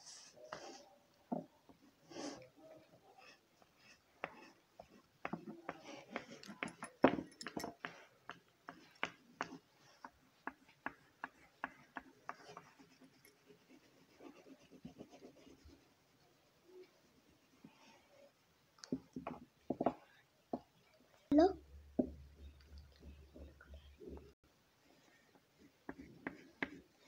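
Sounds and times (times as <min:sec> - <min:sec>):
pastel scratching on paper: 0:08.7 - 0:18.2.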